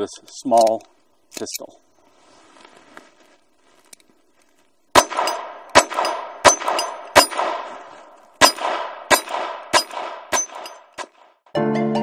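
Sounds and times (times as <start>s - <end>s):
pistol shots with ringing echo: 4.9s - 7.8s, 8.4s - 11.4s.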